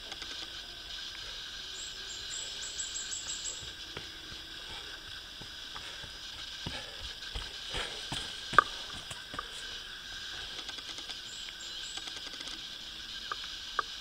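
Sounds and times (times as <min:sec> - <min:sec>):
steady hiss: 0:00.0 - 0:14.0
footfalls on dirt path: 0:03.2 - 0:09.8.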